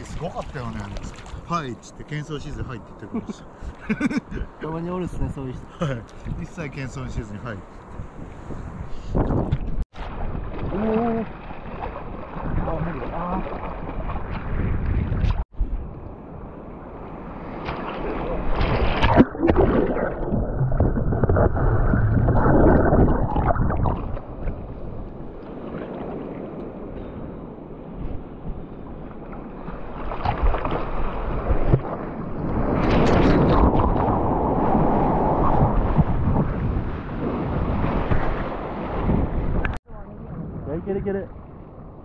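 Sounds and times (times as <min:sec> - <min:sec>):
muffled surf water sloshing: 0:00.0 - 0:42.0.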